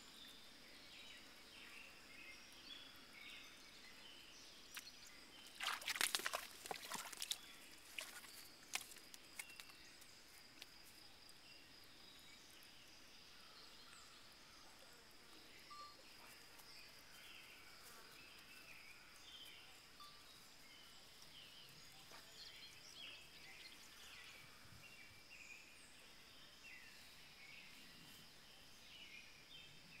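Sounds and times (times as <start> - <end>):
animal splashing in water: 5.4 - 9.7.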